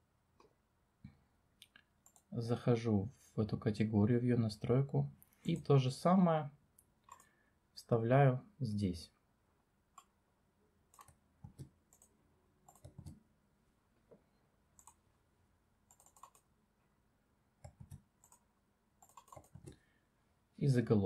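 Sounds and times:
mouse and keyboard clicks: 7.1s - 7.3s, 10.9s - 12.1s, 12.7s - 13.2s, 14.8s - 15.0s, 15.9s - 16.5s, 17.6s - 18.4s, 19.0s - 19.8s.

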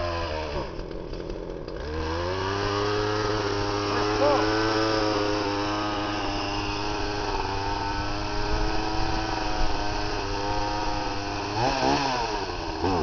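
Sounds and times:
chainsaw engine running: 0.0s - 13.0s
person speaking: 3.9s - 5.4s.

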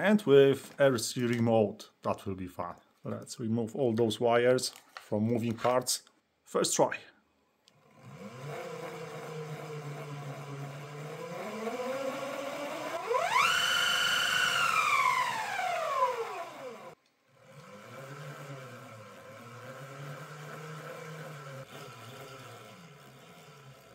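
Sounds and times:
electric motor whine: 7.8s - 23.9s.

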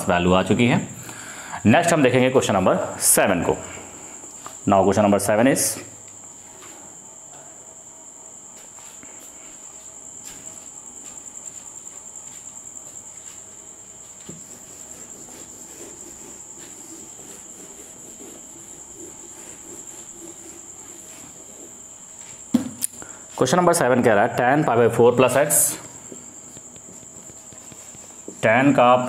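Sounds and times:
cricket trill: 0.0s - 29.0s
duster wiping a whiteboard: 12.3s - 22.4s, 25.3s - 29.0s.

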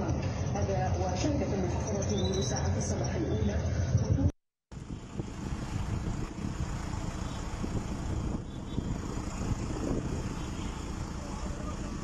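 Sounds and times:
cars driving through flooded street: 5.0s - 12.0s.

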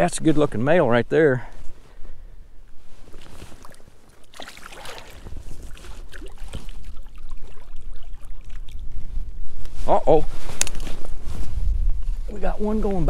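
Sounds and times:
faint rustles and knocks: 1.6s - 4.2s, 9.0s - 12.6s
small waves lapping: 2.8s - 9.1s
wind buffeting microphone: 4.8s - 13.0s.

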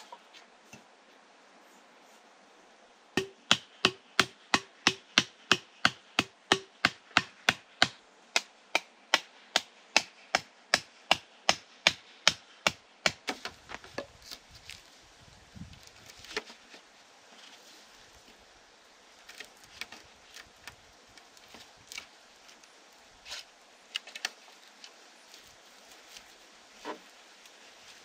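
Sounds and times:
hand tool striking wood: 3.2s - 14.2s.

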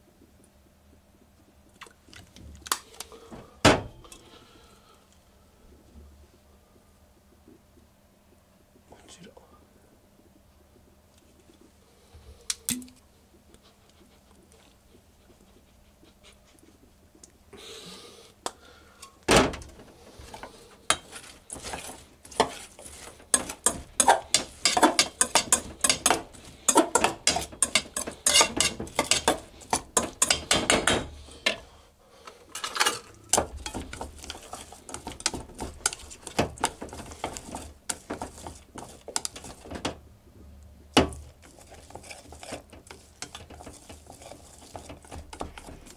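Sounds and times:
spatula scraping metal bowl: 20.3s - 31.6s, 33.3s - 39.6s, 41.3s - 45.9s.

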